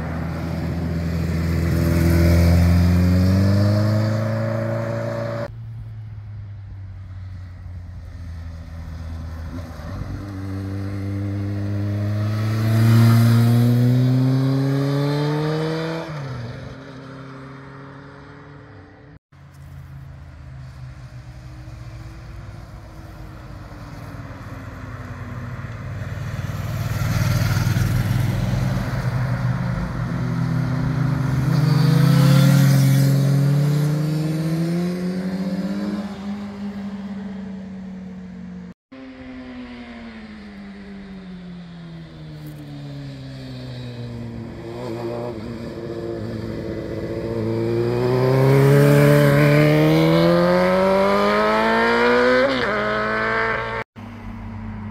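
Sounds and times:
motorcycle engines accelerating: 0.0s - 5.5s, 8.5s - 18.8s, 22.9s - 37.8s, 42.0s - 53.8s.

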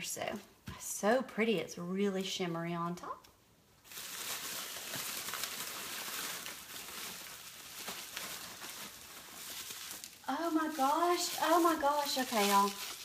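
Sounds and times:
packing material rustling: 3.8s - 13.0s.

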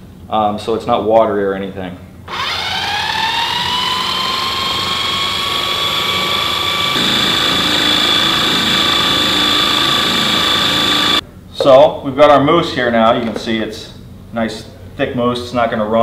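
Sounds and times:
food processor motor whining: 2.3s - 11.2s.

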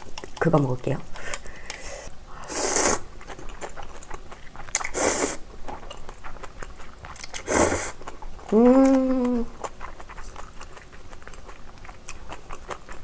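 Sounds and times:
wet chewing clicks: 0.0s - 1.8s, 2.8s - 13.0s
loud hissy noodle slurps: 1.8s - 3.1s, 4.9s - 5.4s, 7.4s - 8.0s.

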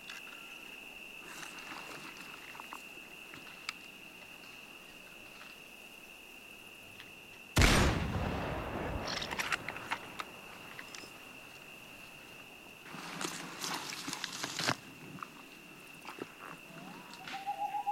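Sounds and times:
high insect drone: 0.0s - 17.9s
rifle shot with rumbling tail: 7.6s - 10.1s.

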